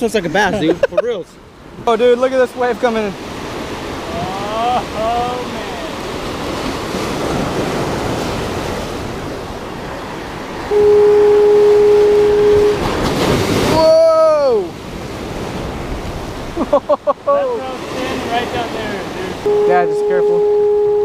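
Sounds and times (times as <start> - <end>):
person calling out: 4.1 - 5.8, 19.5 - 20.6
low horn note: 10.7 - 13.0, 19.5 - 21.0
surf breaking on boulders: 12.8 - 16.6.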